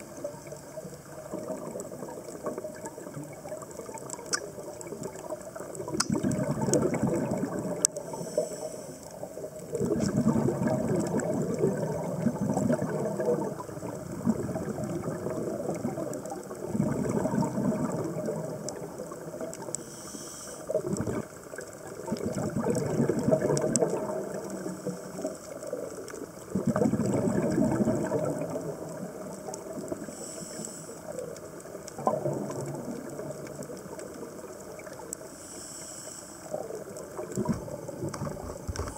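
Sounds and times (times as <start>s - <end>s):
regulator bubbling exhalation: 5.8s - 8.4s, 9.8s - 18.7s, 20.7s - 21.4s, 22.0s - 24.8s, 26.5s - 28.6s
regulator inhalation hiss: 8.0s - 9.2s, 19.8s - 20.8s, 30.0s - 31.3s, 35.2s - 36.7s.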